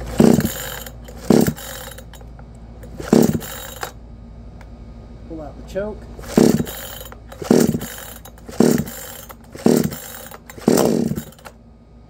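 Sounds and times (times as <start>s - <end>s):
chainsaw engine cranking: 0.0s - 4.0s, 6.2s - 11.6s
chainsaw recoil starter pulls: 0.0s - 4.0s, 6.2s - 11.6s.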